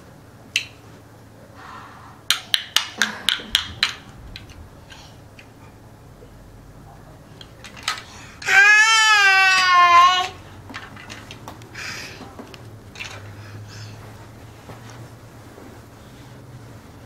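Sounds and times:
plastic toy bricks clicking: 2.3s - 5.0s, 7.4s - 8.6s.

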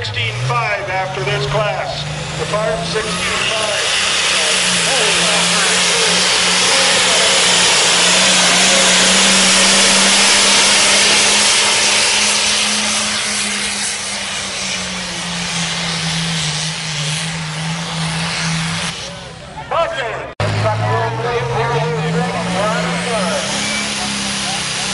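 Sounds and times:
tractor engine at full throttle: 0.0s - 24.9s.

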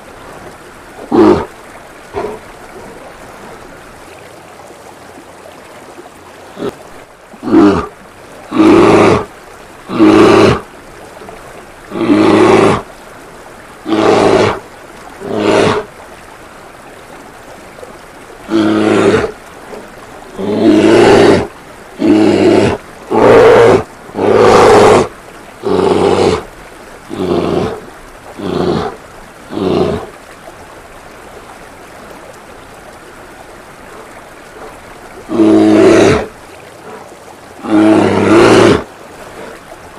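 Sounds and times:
fountain water running: 0.0s - 39.9s
bear growling and roaring: 1.0s - 1.5s, 2.1s - 3.0s, 6.5s - 6.8s, 7.4s - 10.7s, 11.9s - 12.9s, 13.8s - 14.6s, 15.2s - 15.9s, 18.5s - 19.4s, 20.3s - 26.5s, 27.1s - 30.1s, 35.3s - 37.0s, 37.6s - 39.5s.

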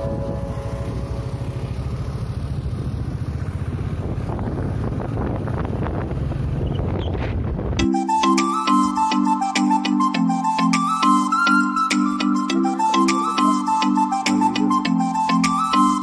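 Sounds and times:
motorbike engine rumble: 0.0s - 7.8s
tyres on road: 0.0s - 7.9s
wind buffeting microphone: 2.6s - 7.8s.

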